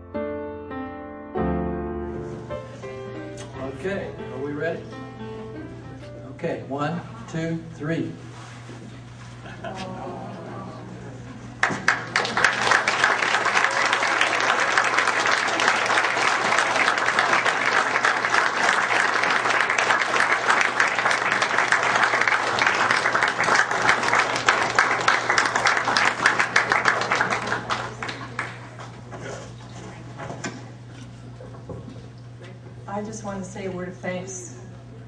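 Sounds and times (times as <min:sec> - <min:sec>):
audience applauding: 0:11.5 - 0:29.0.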